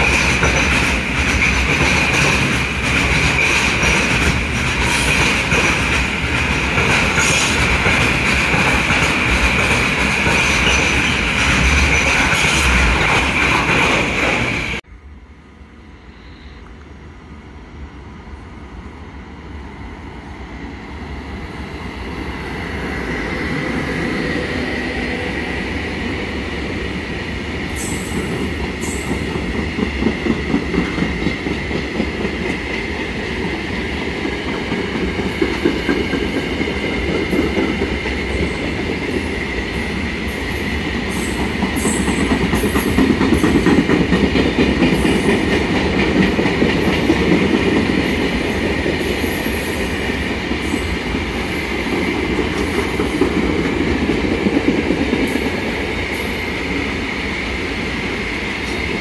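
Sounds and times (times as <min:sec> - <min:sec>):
freight train passing: 0:00.0 - 0:59.0.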